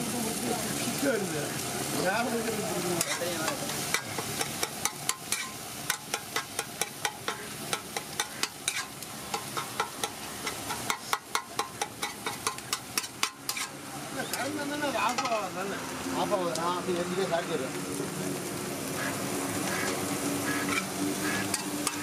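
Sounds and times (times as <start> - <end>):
food sizzling: 0.0 - 22.0
metal spatula scraping griddle: 3.0 - 14.3, 19.8 - 22.0.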